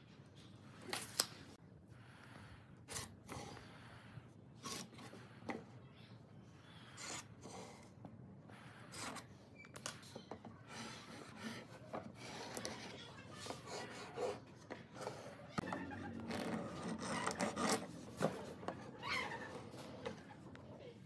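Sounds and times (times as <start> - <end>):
pen scratching on wood: 10.7 - 20.2.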